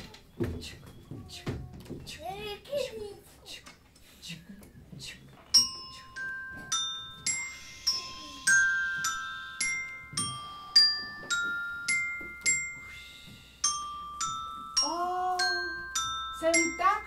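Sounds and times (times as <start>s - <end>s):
glockenspiel melody: 5.5s - 17.0s.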